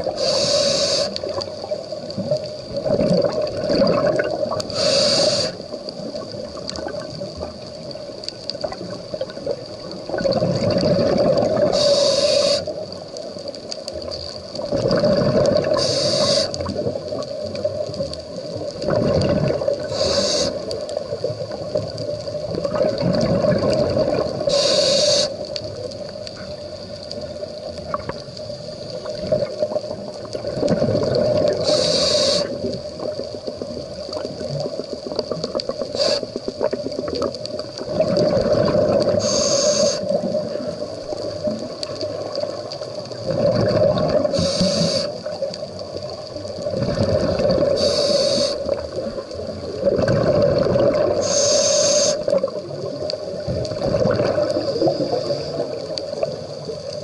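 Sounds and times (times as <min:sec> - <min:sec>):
scuba regulator hiss: 0:00.0 - 0:01.4, 0:04.7 - 0:05.7, 0:11.6 - 0:12.8, 0:15.6 - 0:16.7, 0:19.8 - 0:20.8, 0:24.4 - 0:25.5, 0:31.5 - 0:32.8, 0:35.8 - 0:36.5, 0:39.1 - 0:40.4, 0:44.2 - 0:45.4, 0:47.7 - 0:49.0, 0:51.1 - 0:52.5, 0:54.6 - 0:55.9
exhaled bubbles underwater: 0:00.0 - 0:57.0.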